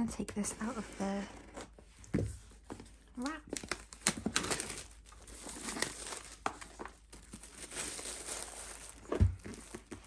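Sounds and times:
plastic wrapping crinkling: 0:03.2 - 0:10.0.

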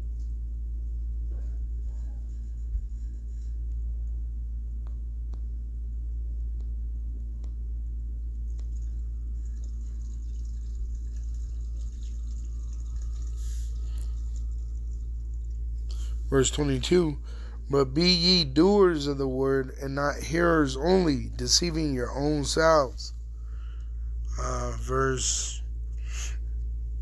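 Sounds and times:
low background hum: 0:00.0 - 0:27.0.

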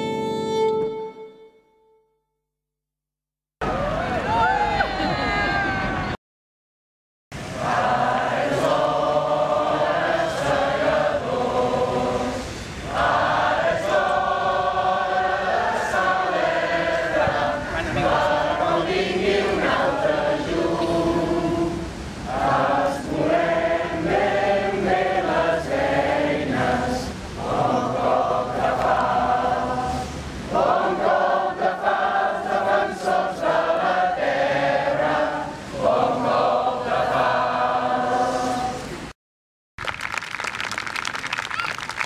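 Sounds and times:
voices singing in unison: 0:07.4 - 0:39.1.

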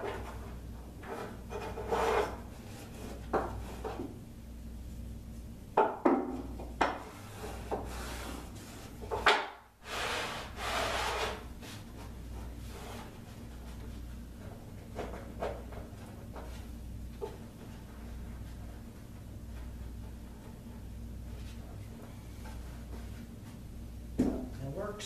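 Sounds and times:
wooden block rubbing carpet: 0:09.8 - 0:11.8.

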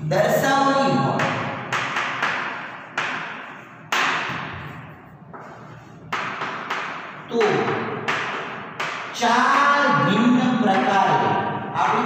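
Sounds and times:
chalk tapping and scratching: 0:01.2 - 0:09.7.

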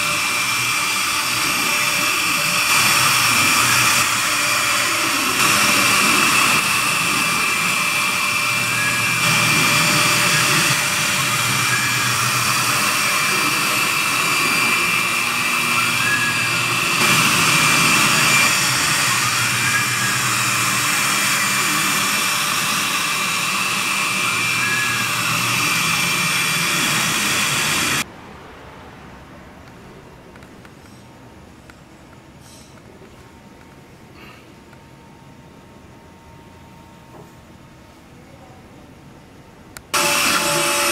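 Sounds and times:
hiss of wood cutting: 0:00.0 - 0:28.0, 0:40.0 - 0:40.9
router spindle whine: 0:00.0 - 0:28.1, 0:39.9 - 0:40.9.

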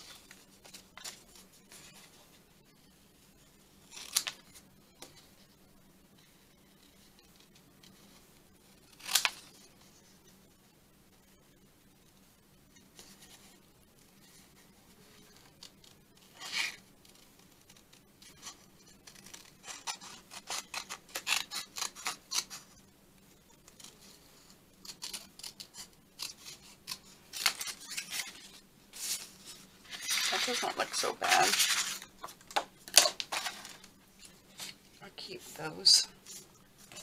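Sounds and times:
scissors snipping paper: 0:18.3 - 0:22.7, 0:24.8 - 0:28.5.

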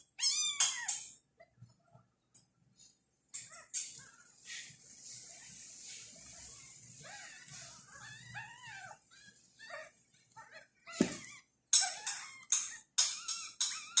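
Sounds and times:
thump: 0:11.0 - 0:11.2.

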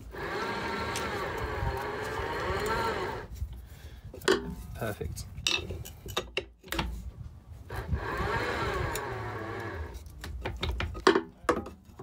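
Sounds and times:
anchor chain grinding: 0:00.0 - 0:03.3, 0:07.7 - 0:10.1
windlass clicks and knocks: 0:04.2 - 0:04.7, 0:05.3 - 0:07.0, 0:07.7 - 0:12.0.

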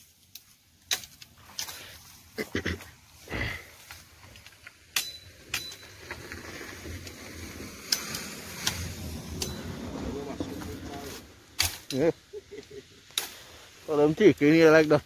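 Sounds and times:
leaves and brush rustling: 0:00.0 - 0:15.0
cane stalk snapping: 0:00.2 - 0:01.9.

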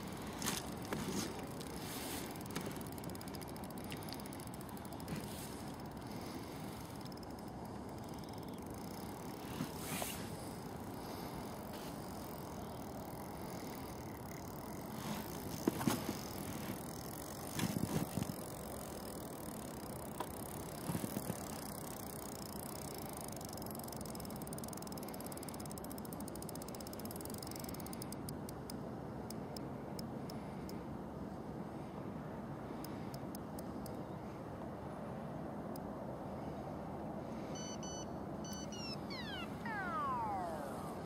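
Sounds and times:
fishing reel ticking and rattling: 0:00.0 - 0:28.7
steady background hiss: 0:00.0 - 0:41.0.

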